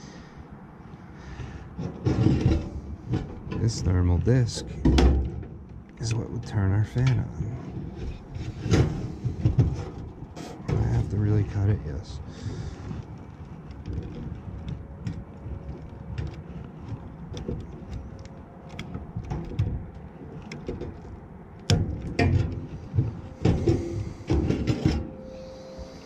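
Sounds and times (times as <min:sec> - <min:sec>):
small clicks rattles and scrapes: 0:05.6 - 0:25.0.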